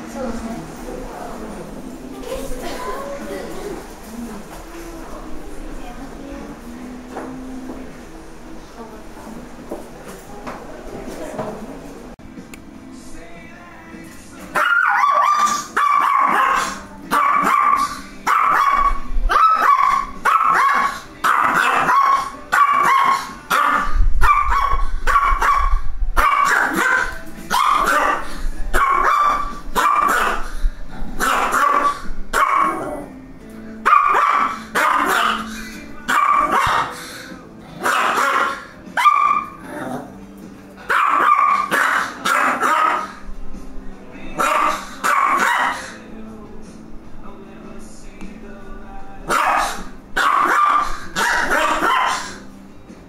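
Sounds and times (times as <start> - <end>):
dog barking: 14.6 - 30.5, 31.2 - 32.8, 33.8 - 35.5, 36.1 - 37.0, 37.8 - 39.6, 40.8 - 43.2, 44.4 - 46.0, 49.3 - 52.4.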